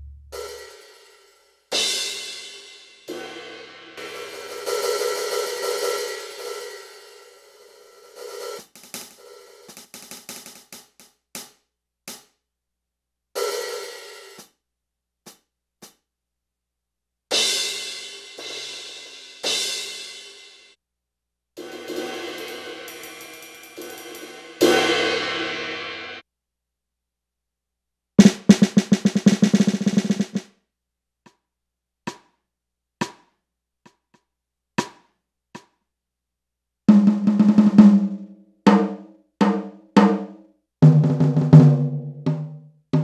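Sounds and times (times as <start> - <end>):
cymbal crashes: 21.6 - 26.2
quick drum strokes: 28.2 - 30.4.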